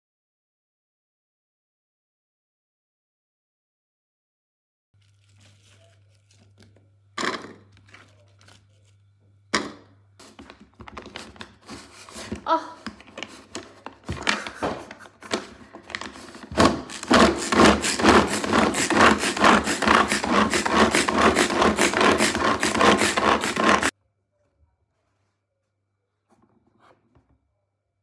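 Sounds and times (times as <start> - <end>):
pull-cord food chopper chopping: 15.3 - 23.9.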